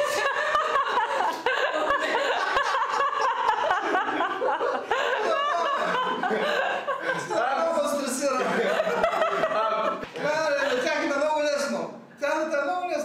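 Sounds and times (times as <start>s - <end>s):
man laughing heartily: 0.0s - 7.7s
people laughing: 0.0s - 11.4s.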